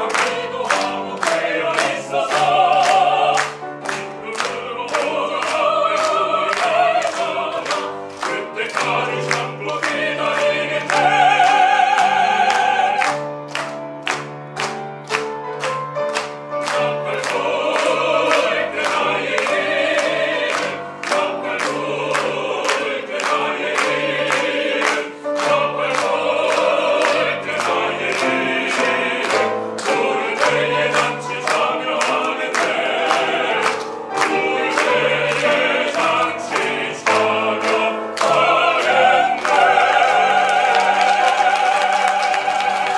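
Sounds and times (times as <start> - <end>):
ensemble singing a hymn: 0.0 - 14.2, 16.2 - 42.9.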